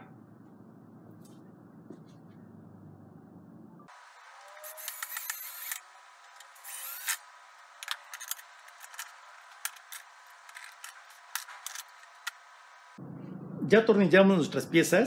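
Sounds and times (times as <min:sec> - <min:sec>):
cordless drill driving screws: 0:04.6 - 0:05.8, 0:06.5 - 0:07.2.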